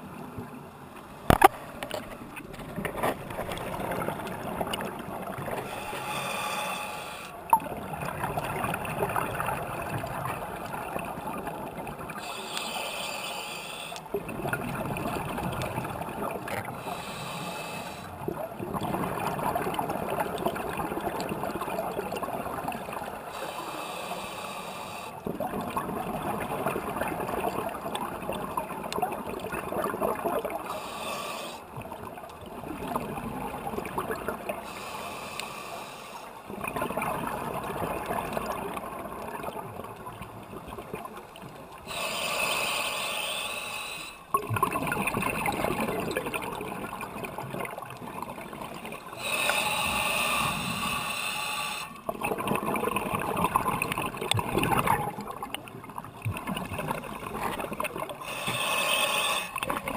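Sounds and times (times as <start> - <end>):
regulator hissing inhale: 5.6 - 7.4, 12.2 - 14.1, 16.8 - 18.2, 23.3 - 25.2, 30.6 - 31.7, 34.6 - 36.4, 41.8 - 44.3, 49.2 - 52.1, 58.2 - 59.6
bubbling exhale underwater: 18.1 - 23.2, 44.3 - 51.0, 52.0 - 59.9.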